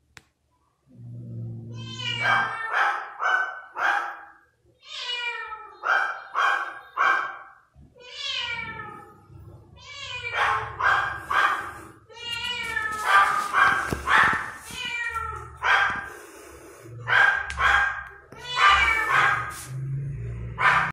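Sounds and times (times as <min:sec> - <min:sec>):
kitten meowing: 0:01.7 - 0:02.7, 0:18.4 - 0:19.4.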